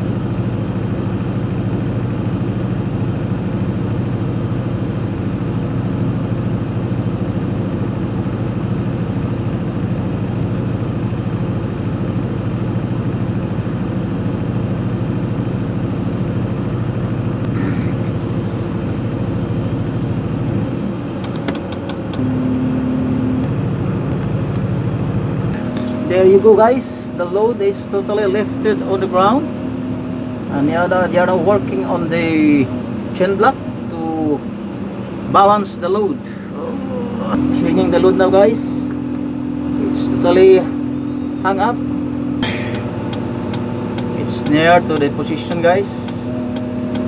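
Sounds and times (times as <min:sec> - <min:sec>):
crane engine running: 0:00.0 - 0:47.0
sharp clicks: 0:42.7 - 0:47.0.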